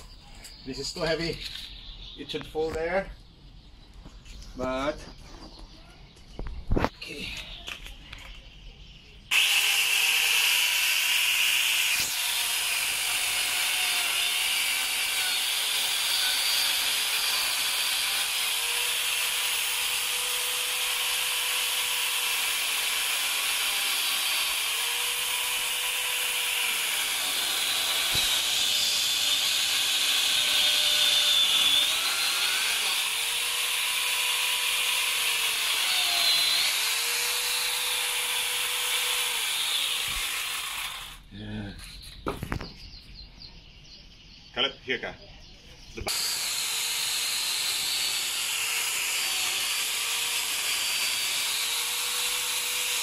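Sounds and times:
angle grinder chainsaw cutting wood: 0:09.3 - 0:41.2, 0:46.0 - 0:53.0.

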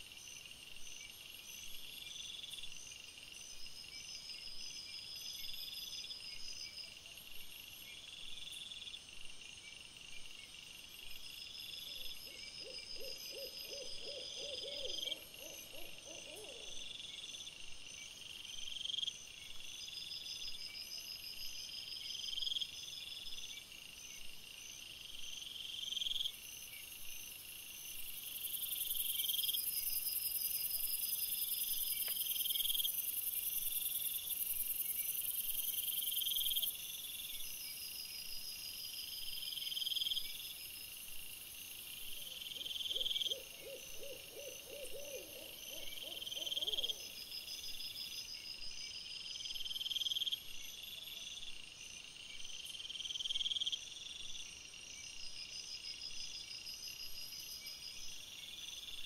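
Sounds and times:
crickets chirping: 0:00.0 - 0:59.0.

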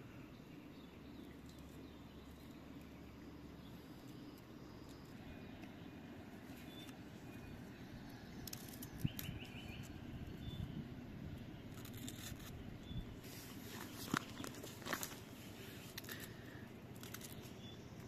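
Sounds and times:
faint bird chirps: 0:00.0 - 0:10.8, 0:11.7 - 0:14.6
low steady outdoor background: 0:00.0 - 0:18.0.

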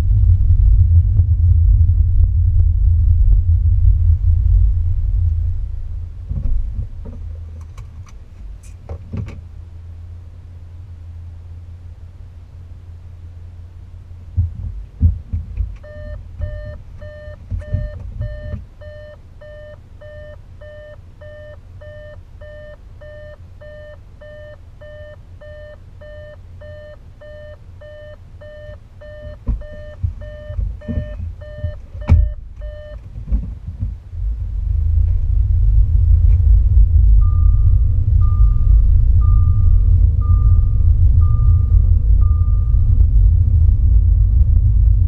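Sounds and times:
low rumble of moving car: 0:00.0 - 0:45.0
dull thumps: 0:14.3 - 0:18.7, 0:29.3 - 0:34.0
car warning chime beeping: 0:15.8 - 0:33.1, 0:37.2 - 0:43.0.

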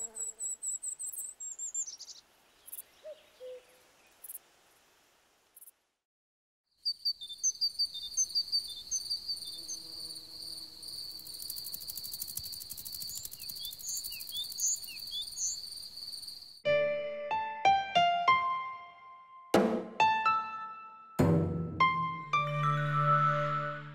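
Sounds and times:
short insect chirps: 0:06.7 - 0:16.6
crickets trilling: 0:06.9 - 0:16.6
piano music: 0:16.6 - 0:23.9.

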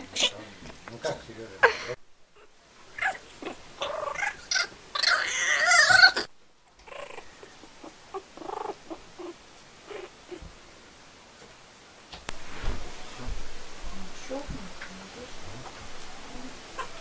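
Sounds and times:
kitten hissing and yowling: 0:03.0 - 0:06.3.

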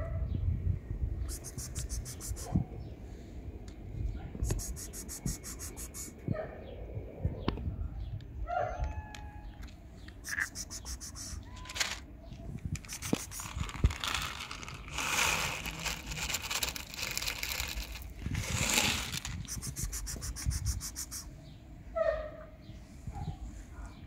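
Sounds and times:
kibble rattling in plastic bottle: 0:11.6 - 0:12.1, 0:12.8 - 0:20.4
kibble spilling onto asphalt: 0:12.8 - 0:19.6.

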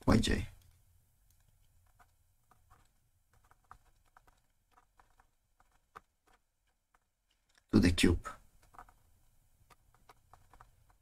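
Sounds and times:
stylus tapping on tablet: 0:01.3 - 0:07.7, 0:08.6 - 0:11.0.

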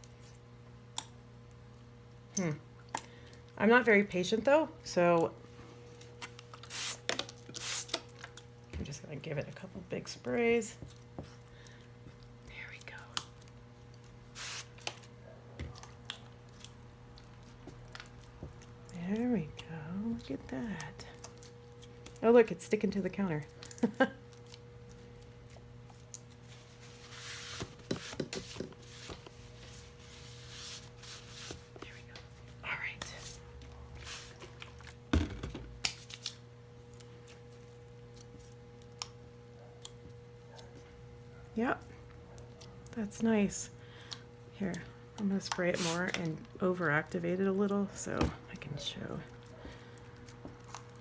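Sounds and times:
spray bottle hiss: 0:06.7 - 0:07.0, 0:14.4 - 0:14.7.

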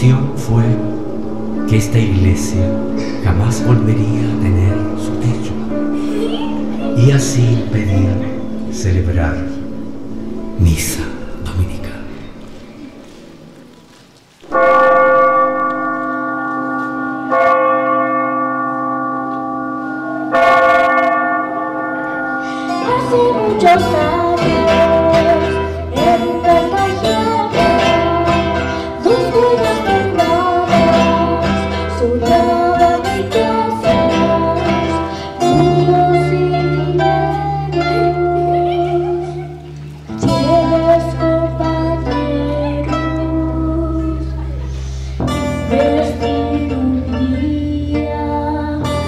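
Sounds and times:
plucked-string melody: 0:00.0 - 0:13.4, 0:14.4 - 0:49.0
long ringing chords: 0:00.0 - 0:13.8, 0:14.4 - 0:49.0
low bass line: 0:00.0 - 0:20.2.

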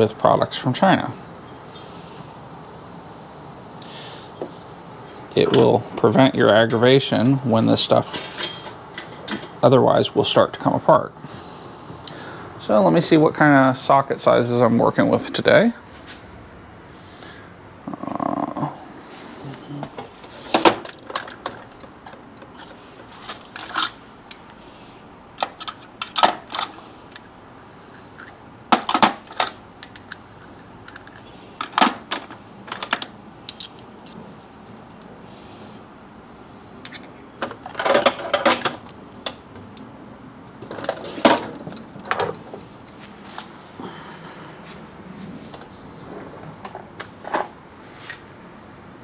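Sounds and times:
metal tools clinking: 0:06.5 - 0:09.7, 0:20.5 - 0:24.5, 0:28.0 - 0:35.5, 0:36.6 - 0:43.4.

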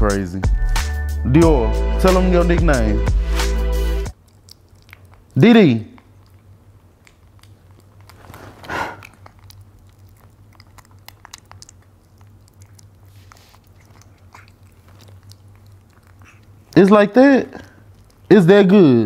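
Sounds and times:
monkey chewing and crunching: 0:04.1 - 0:19.0.

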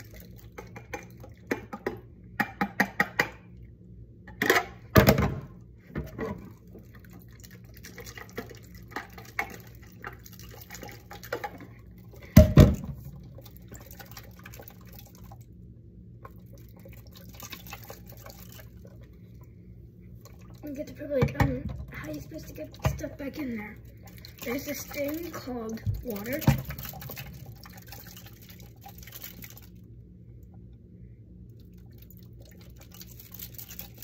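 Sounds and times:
container knocking against cup: 0:00.6 - 0:03.4
water splashing into cup: 0:16.2 - 0:19.2, 0:20.2 - 0:29.8, 0:31.6 - 0:34.0.

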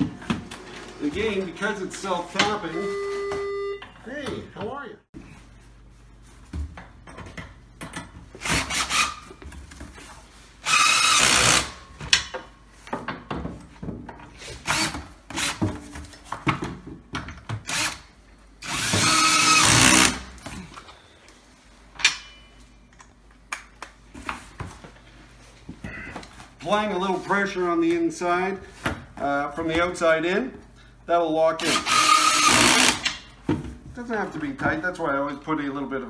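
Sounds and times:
cordless drill driving screws: 0:08.4 - 0:09.2, 0:10.6 - 0:11.8, 0:14.6 - 0:15.6, 0:17.6 - 0:18.0, 0:18.6 - 0:20.2, 0:31.6 - 0:33.1.

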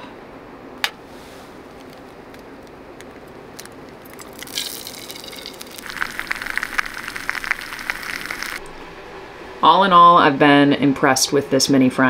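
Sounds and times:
steady low rush: 0:01.5 - 0:12.0
egg sizzling in frying pan: 0:01.8 - 0:08.6.

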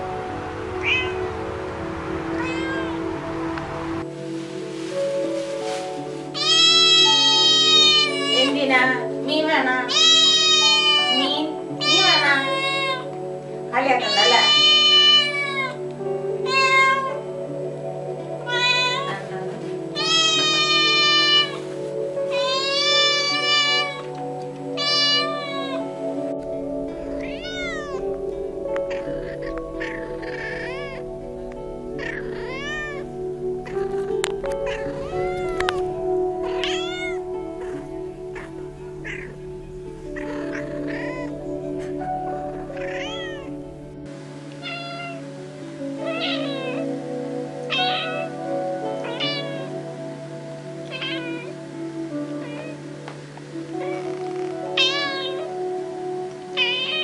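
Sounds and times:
background music: 0:00.0 - 0:57.0
kittens meowing: 0:00.8 - 0:01.3, 0:02.3 - 0:03.1, 0:26.5 - 0:43.9.

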